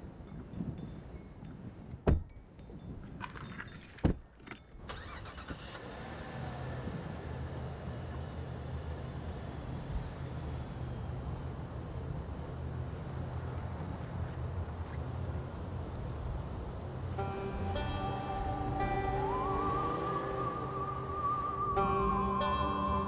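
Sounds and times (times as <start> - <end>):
car doors slamming: 2.0 - 2.3
keys jingling: 2.1 - 4.8
car engine starting and idling: 4.4 - 23.0.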